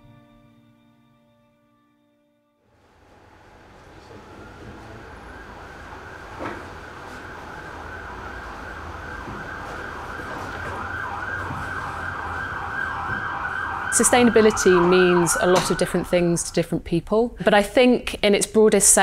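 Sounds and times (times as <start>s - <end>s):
emergency vehicle siren: 3.1s - 16.8s.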